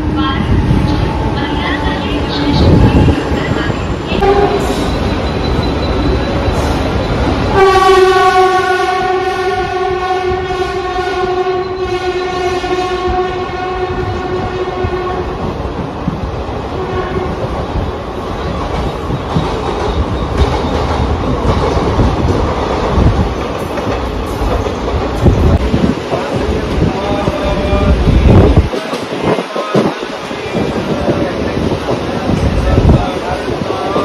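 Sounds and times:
train rumbling on rails: 0.0 - 34.0
train horn blast: 4.2 - 4.9, 7.5 - 15.4, 16.8 - 17.5.

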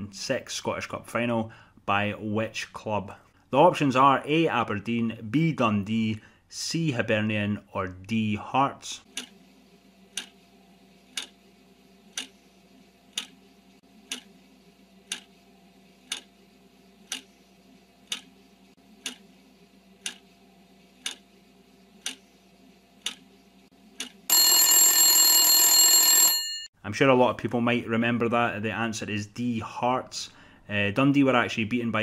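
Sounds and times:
clock ticking: 10.2 - 10.4, 11.1 - 11.4, 12.1 - 12.3, 13.1 - 13.4, 14.1 - 14.3, 15.1 - 15.3, 16.1 - 16.3, 17.1 - 17.3, 18.1 - 18.3, 19.0 - 19.2, 20.0 - 20.2, 21.0 - 21.2, 22.0 - 22.2, 23.0 - 23.2.

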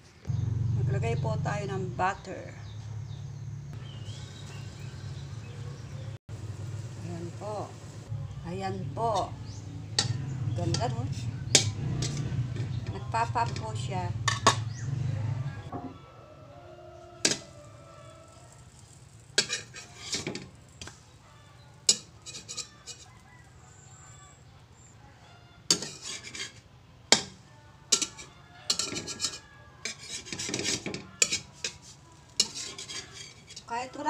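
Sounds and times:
metal spatula scraping a wok: 8.9 - 15.0, 17.2 - 21.2, 21.8 - 23.4, 25.7 - 34.0.

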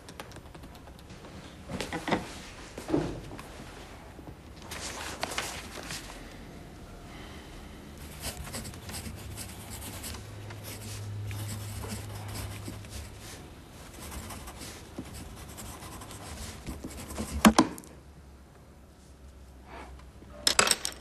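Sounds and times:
low steady hum: 0.0 - 21.0
pencil scratching on paper: 8.0 - 17.6.

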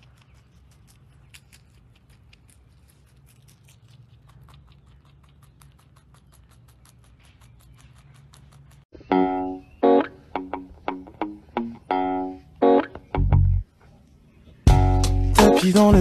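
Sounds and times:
rabbit chewing: 0.0 - 9.0.

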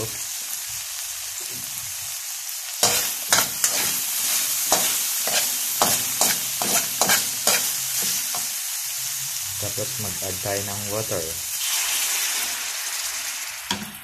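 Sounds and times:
meat sizzling in a wok: 0.0 - 14.0
metal ladle scraping a pan: 2.8 - 8.5.

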